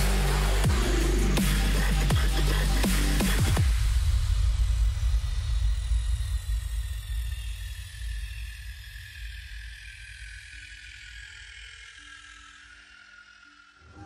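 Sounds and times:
low bass rumble: 0.0s - 10.0s.

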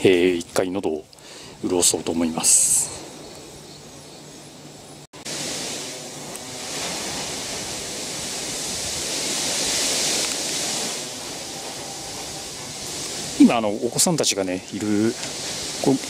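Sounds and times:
strong gusty wind: 4.6s - 16.0s.

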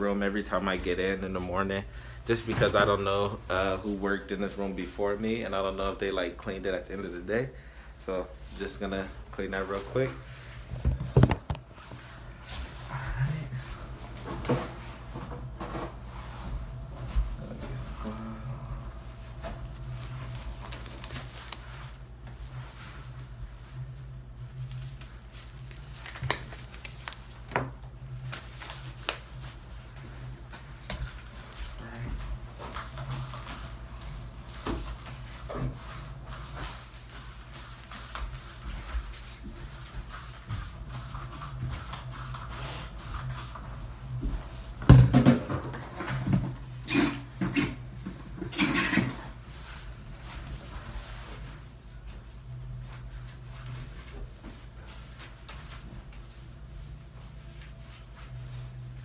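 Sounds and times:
steady low hum: 0.0s - 59.0s
gloves rustling: 19.0s - 31.6s.

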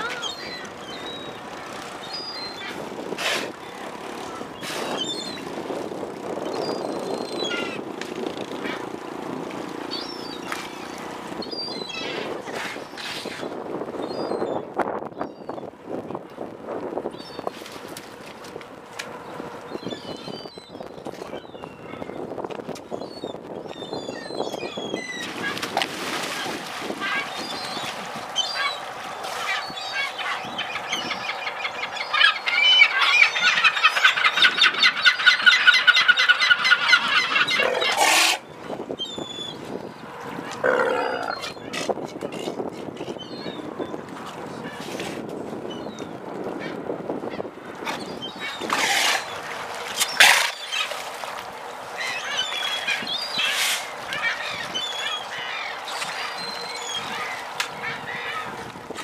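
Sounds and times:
water splashing: 25.2s - 30.4s
birds squawking: 27.0s - 39.6s, 52.0s - 58.6s
sea lion calls: 29.4s - 38.4s, 40.5s - 42.6s.

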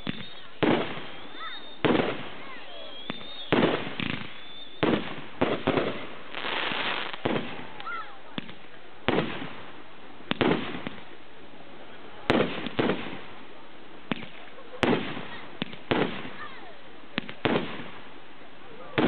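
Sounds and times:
firework bangs: 0.0s - 11.4s, 12.0s - 19.0s
firework crackling: 0.0s - 19.0s.

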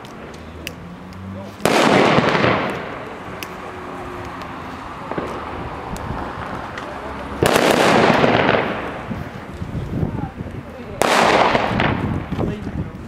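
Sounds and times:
firecracker bang: 1.6s - 3.3s, 5.0s - 5.6s, 7.4s - 9.4s, 11.0s - 12.4s.

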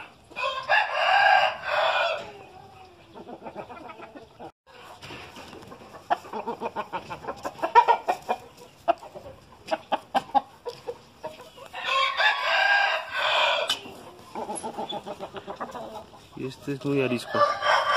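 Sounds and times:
roosters clucking: 0.0s - 17.9s
rooster crowing: 0.4s - 2.3s, 11.8s - 13.8s, 17.2s - 17.9s.

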